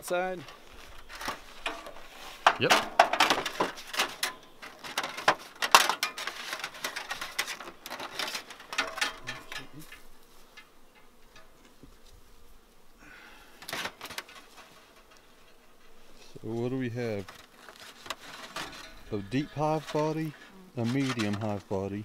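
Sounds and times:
wire scraping against metal cover: 0.0s - 11.8s, 13.6s - 21.7s.

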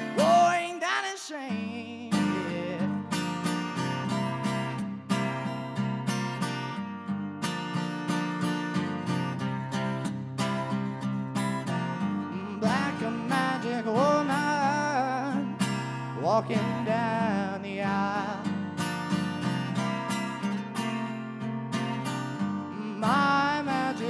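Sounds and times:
young man singing: 0.0s - 3.2s, 11.7s - 18.6s, 22.6s - 24.0s
acoustic guitar strumming: 0.0s - 24.0s.

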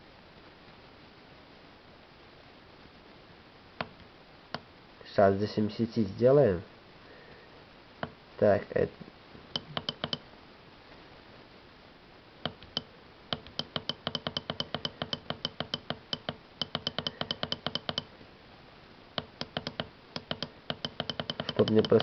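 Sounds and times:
keypad button clicks: 9.6s - 10.2s, 12.5s - 18.1s, 19.2s - 22.0s.

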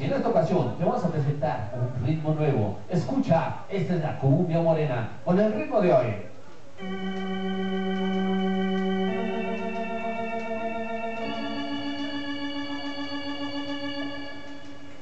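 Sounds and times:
electronic organ chords: 6.8s - 15.0s.

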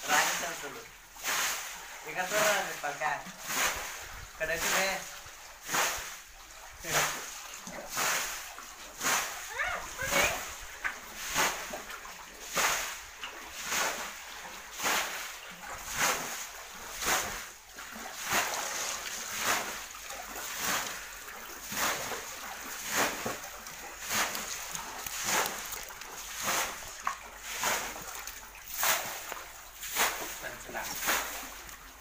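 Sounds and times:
water splashing: 0.0s - 32.0s.

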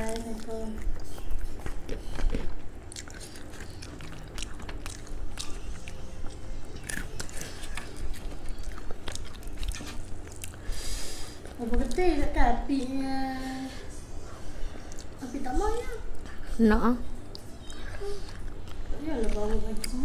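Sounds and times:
person chewing crunchy food: 0.0s - 12.0s, 17.2s - 20.0s.

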